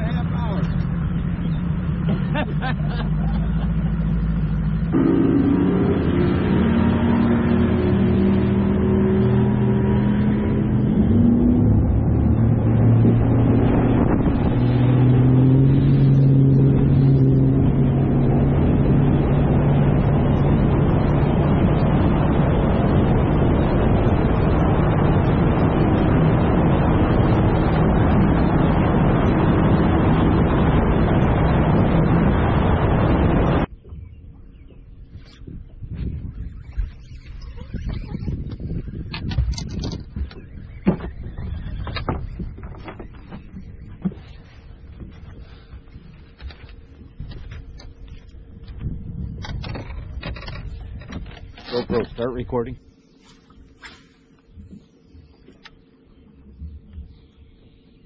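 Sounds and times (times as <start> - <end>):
outboard motor running: 0.0 - 58.0
rush of wind and water spray: 5.4 - 33.7.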